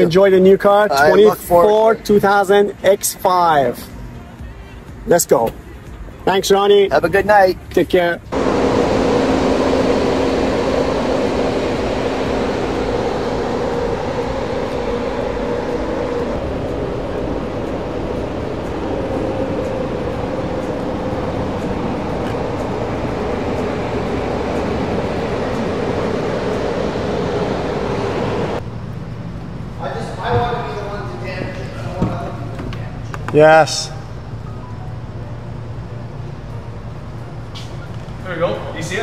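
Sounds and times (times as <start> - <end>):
machine hum with two tones: 8.3 - 29.8
rushing noise: 8.3 - 32.5.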